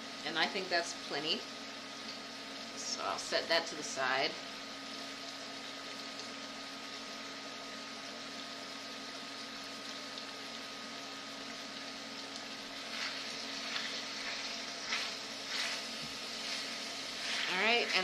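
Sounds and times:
chicken sizzling in skillet: 0:00.0 - 0:18.0
steady hum: 0:00.0 - 0:18.0
spoon scraping pan: 0:12.8 - 0:18.0.

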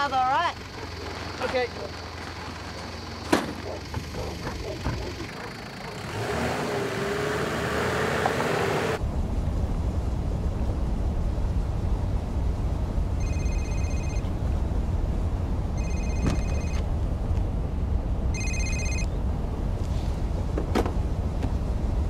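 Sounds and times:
car cabin road and engine noise: 0:00.0 - 0:22.0
telephone ringing: 0:13.2 - 0:14.2, 0:15.8 - 0:16.8, 0:18.4 - 0:19.1.

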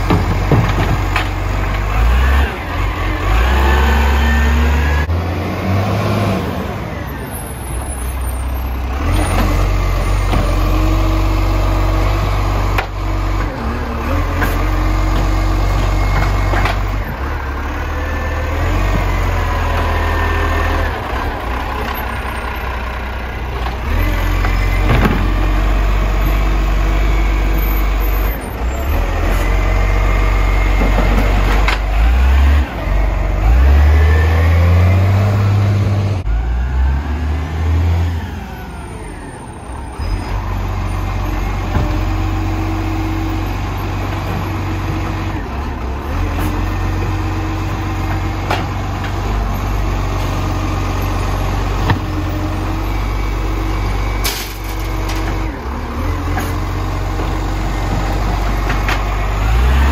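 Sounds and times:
garbage truck engine running: 0:00.0 - 0:05.5, 0:06.4 - 0:59.9.

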